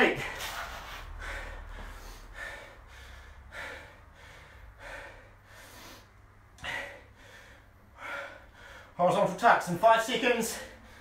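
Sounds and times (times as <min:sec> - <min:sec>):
man panting heavily: 0:00.0 - 0:09.0, 0:10.5 - 0:11.0.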